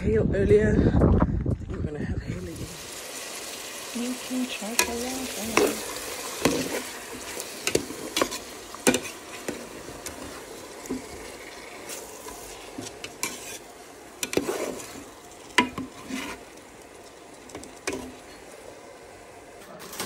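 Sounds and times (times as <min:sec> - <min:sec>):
vegetables sizzling in a pot: 0:02.4 - 0:20.0
metal spoon scraping a pot: 0:04.8 - 0:16.5.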